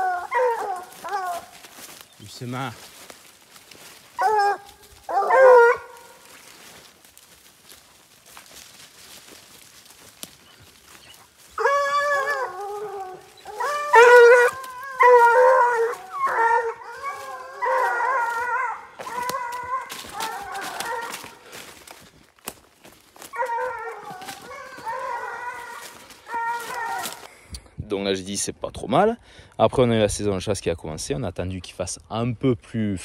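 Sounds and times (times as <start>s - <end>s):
hounds baying: 0.0s - 2.0s, 3.6s - 6.8s, 10.2s - 22.0s, 22.9s - 27.3s
rustling of undergrowth: 0.0s - 27.6s.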